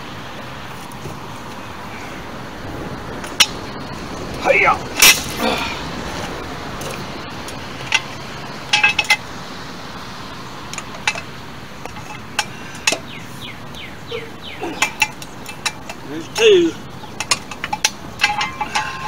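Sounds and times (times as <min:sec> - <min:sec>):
metal socket clinking on lug nuts: 0:06.8 - 0:09.3, 0:10.7 - 0:13.2, 0:14.7 - 0:19.0.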